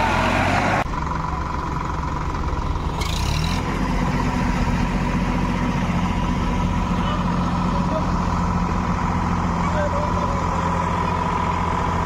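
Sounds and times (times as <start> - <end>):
tractor diesel engine revving: 0.0 - 12.0.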